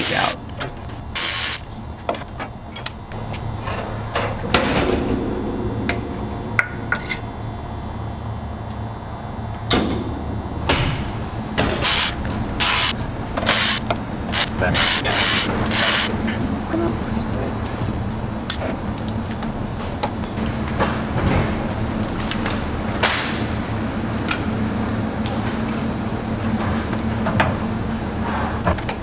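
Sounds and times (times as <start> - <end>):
electric ratchet spinning: 11.8 - 16.1.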